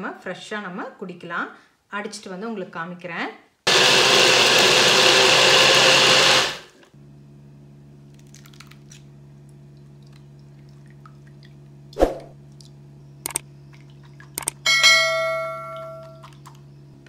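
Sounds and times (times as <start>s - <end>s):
blender grinding: 3.7s - 7.0s
low steady hum: 6.9s - 17.0s.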